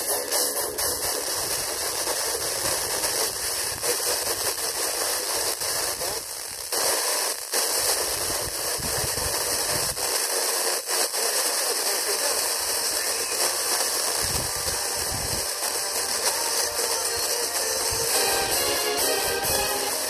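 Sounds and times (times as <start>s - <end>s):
radio static hiss: 0.0s - 20.0s.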